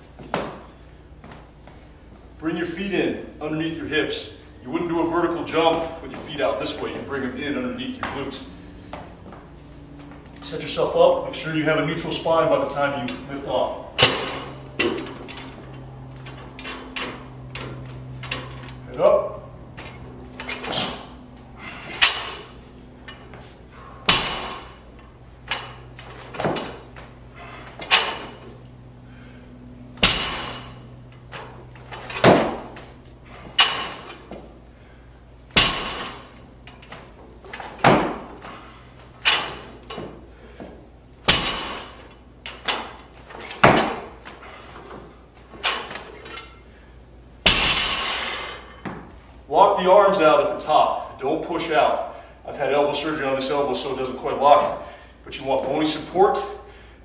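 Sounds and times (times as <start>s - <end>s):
steady low hum: 0.0s - 57.0s
barbell plates clinking: 14.0s - 23.4s, 24.1s - 26.8s, 27.4s - 28.6s, 30.0s - 34.3s, 35.5s - 38.3s, 47.4s - 48.9s.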